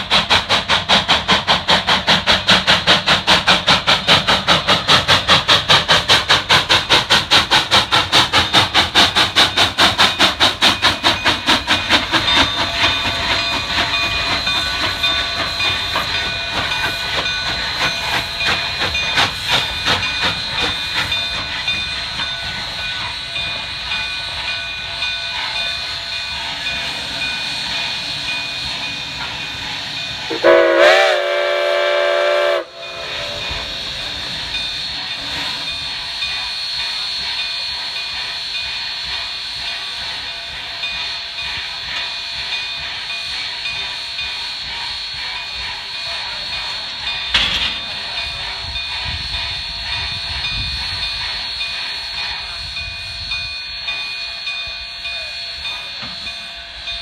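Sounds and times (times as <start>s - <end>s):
steam hissing: 0.0s - 57.0s
steam locomotive chuffing: 0.0s - 57.0s
steam whistle blast: 30.3s - 34.2s.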